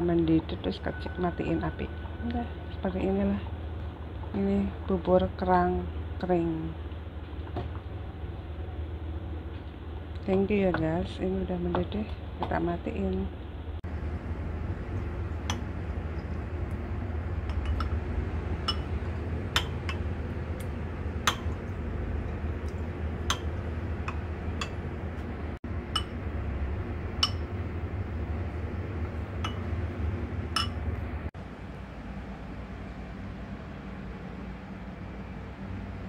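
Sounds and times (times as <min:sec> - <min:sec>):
steady low hum: 0:00.0 - 0:36.0
spoons clinking against ceramic bowls: 0:17.5 - 0:18.0, 0:18.6 - 0:20.1, 0:21.3 - 0:21.6, 0:23.2 - 0:24.8, 0:26.0 - 0:26.2, 0:27.2 - 0:27.5, 0:30.6 - 0:30.8.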